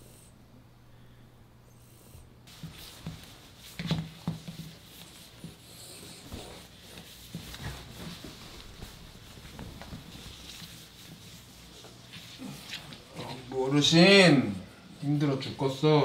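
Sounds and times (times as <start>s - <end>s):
blanket rustling: 2.5s - 14.4s
cat paws pattering and scuffing: 2.5s - 16.0s.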